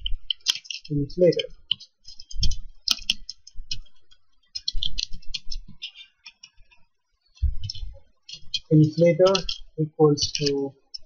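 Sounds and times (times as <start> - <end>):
computer keyboard typing: 0.0 - 6.8, 7.4 - 11.0.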